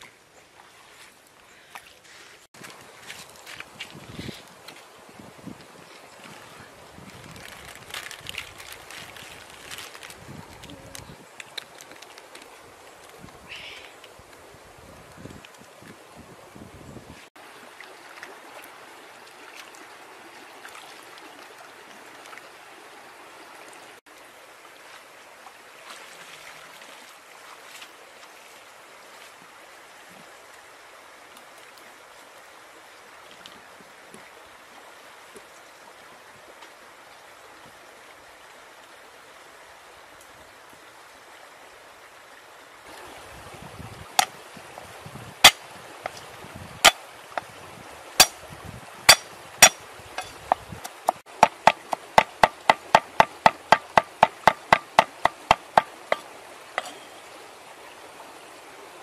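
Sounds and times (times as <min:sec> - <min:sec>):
stream water rushing: 0:00.0 - 0:59.0
sharp knocks: 0:49.1 - 0:56.2.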